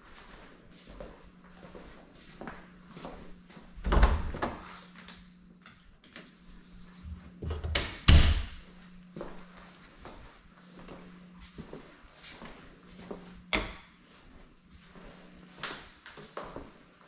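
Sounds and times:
door banging shut: 7.7s - 8.6s.

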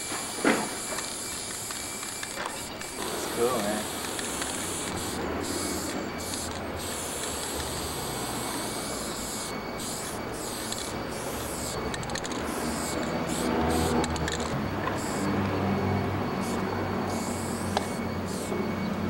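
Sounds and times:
spray paint can hissing: 0.0s - 18.7s.

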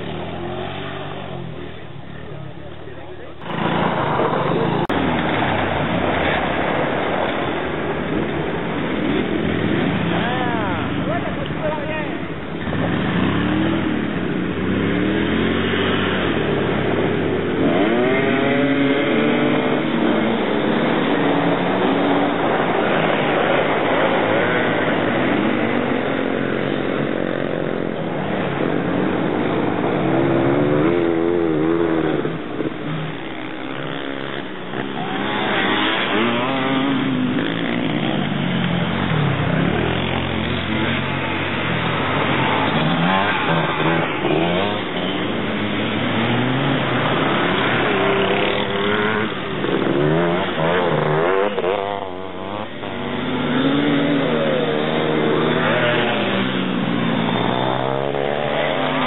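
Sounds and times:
racing trike engines revving: 0.0s - 59.0s.

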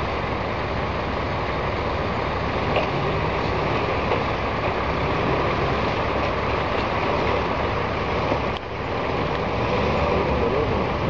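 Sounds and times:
off-road vehicle engine running: 0.0s - 11.0s.

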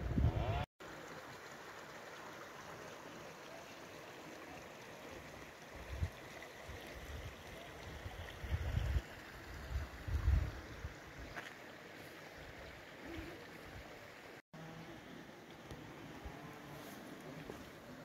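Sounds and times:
wind buffeting microphone: 0.0s - 0.6s, 9.6s - 10.9s.

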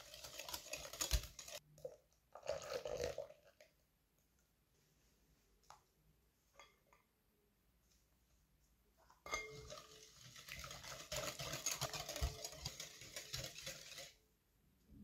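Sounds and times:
whisk clinking against glass bowl: 9.2s - 14.2s.

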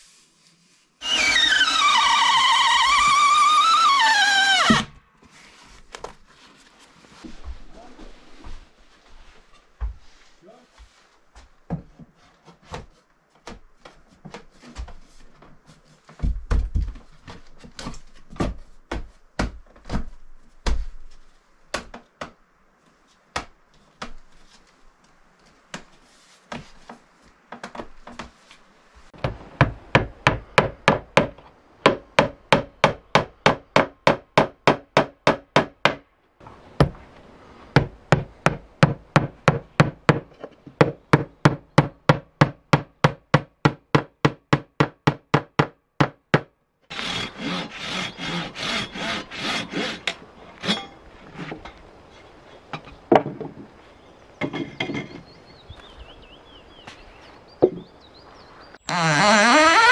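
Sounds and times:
wooden boards knocking and clattering: 16.1s - 21.0s, 52.8s - 53.8s, 54.4s - 55.3s, 57.6s - 57.9s.

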